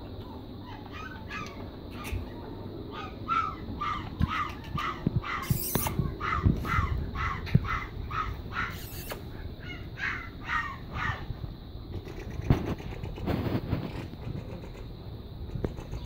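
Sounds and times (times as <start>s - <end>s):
animal calling: 0.6s - 11.3s.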